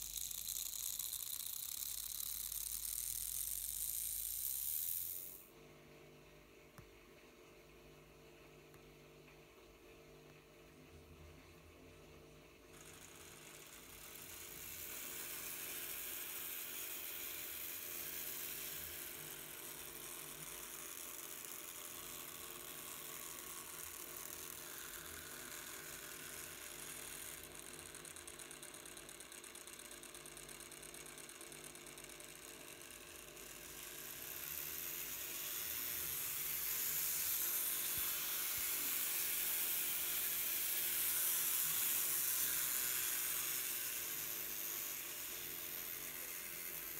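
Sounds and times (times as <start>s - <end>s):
model train motor whirring: 0.0s - 5.5s, 12.7s - 46.9s.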